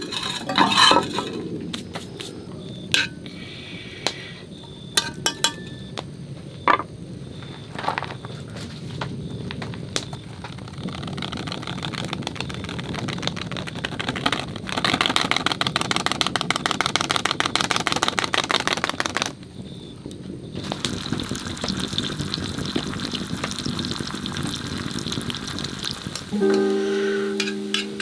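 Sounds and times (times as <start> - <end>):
wood fire crackling: 0.0 - 28.0
butter and garlic sizzling: 10.5 - 15.3, 20.6 - 28.0.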